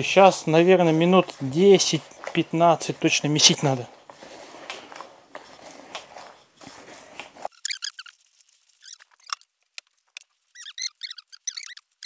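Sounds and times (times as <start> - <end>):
short high-pitched squeaks: 7.5 - 9.5, 10.4 - 12.0.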